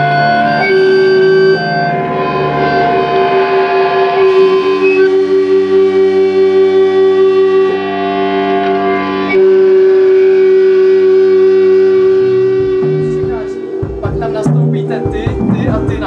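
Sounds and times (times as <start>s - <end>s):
electric guitar feedback drone: 0.0s - 16.0s
drum hits: 12.2s - 16.0s.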